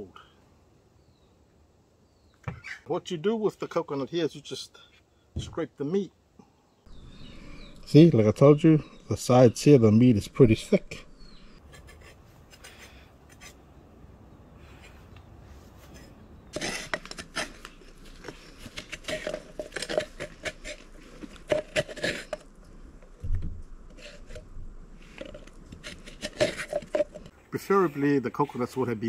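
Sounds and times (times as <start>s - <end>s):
coconut meat scraping: 16.0s - 22.5s, 23.9s - 27.3s.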